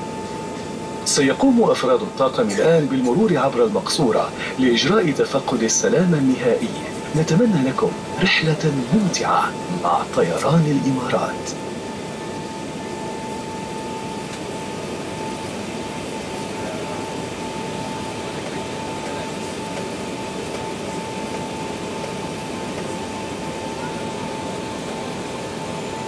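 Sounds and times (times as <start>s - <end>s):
aircraft cabin engine rush: 0.0s - 26.0s
steady high whine: 0.0s - 26.0s.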